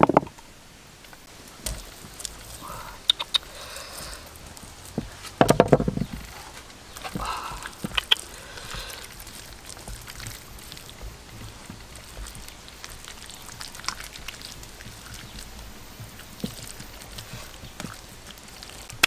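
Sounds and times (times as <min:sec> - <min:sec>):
sharp clicks: 0:03.0 - 0:03.5, 0:07.7 - 0:08.4
wet slapping and squelching: 0:06.9 - 0:19.0.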